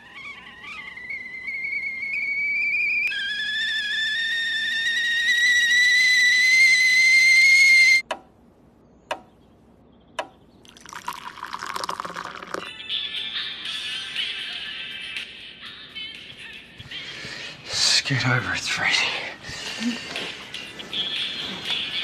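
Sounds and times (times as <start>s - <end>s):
stovetop kettle whistling: 0.0s - 8.0s
water pouring into a mug: 10.6s - 12.7s.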